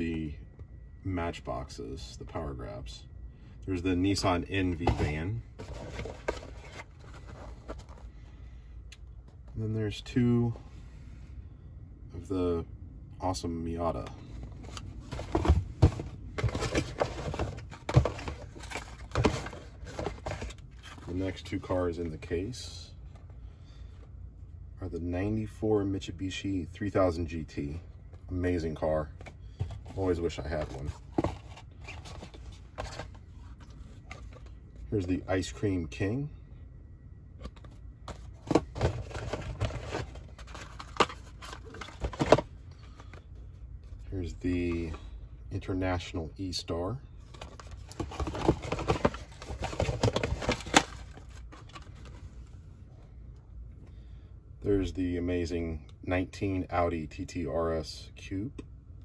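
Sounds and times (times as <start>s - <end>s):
cardboard boxes tapping and knocking: 4.7s - 7.9s, 14.7s - 20.6s, 37.6s - 42.4s, 47.3s - 51.9s
cardboard rustling scrapes: 4.8s - 8.1s, 47.3s - 52.1s.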